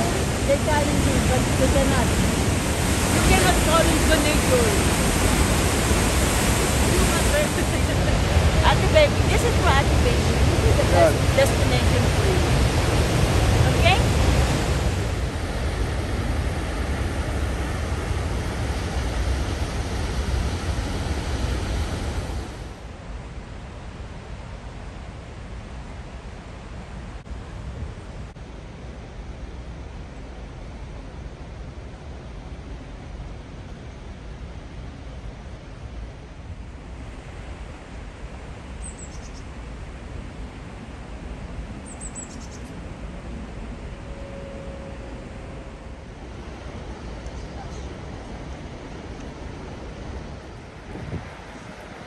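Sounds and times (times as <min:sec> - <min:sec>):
waterfall rushing: 0:00.0 - 0:22.8
wind buffeting microphone: 0:00.0 - 0:25.0, 0:42.6 - 0:52.0
white water rushing: 0:00.0 - 0:29.1, 0:29.7 - 0:52.0
small bird chirping: 0:38.8 - 0:39.4, 0:41.8 - 0:42.7.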